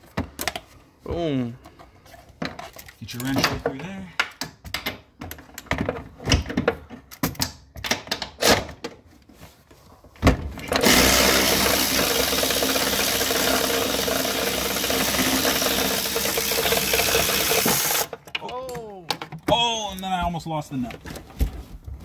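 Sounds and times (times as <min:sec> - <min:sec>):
motorized tool running: 0:10.8 - 0:18.1.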